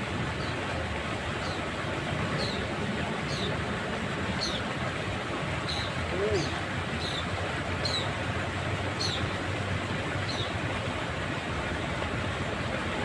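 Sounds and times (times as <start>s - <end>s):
distant city traffic rumble: 0.0s - 13.0s.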